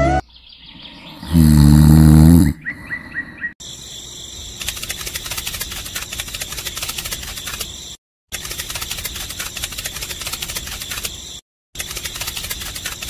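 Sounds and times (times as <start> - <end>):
cartoon snore: 0.8 - 2.8.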